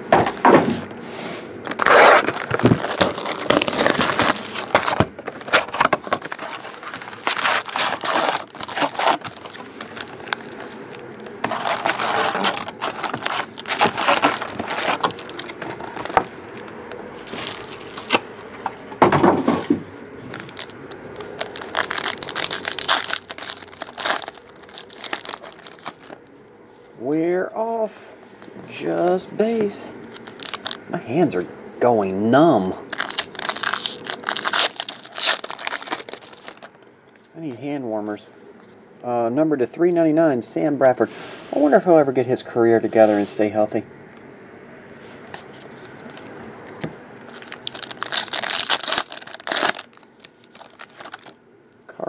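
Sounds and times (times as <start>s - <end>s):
shrink wrap being pulled off: 1.6s - 18.3s, 20.3s - 26.2s, 30.0s - 30.8s, 32.9s - 36.7s, 47.3s - 51.4s
foil packs crinkling: 1.6s - 18.7s, 20.2s - 26.2s, 29.6s - 30.8s, 32.9s - 36.8s, 47.3s - 51.4s.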